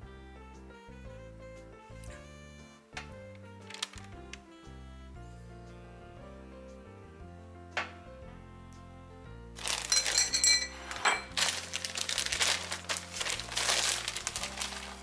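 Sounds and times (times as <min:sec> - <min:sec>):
soft background music: 0:00.0 - 0:15.0
crinkling and rustling: 0:03.6 - 0:04.4, 0:09.6 - 0:15.0.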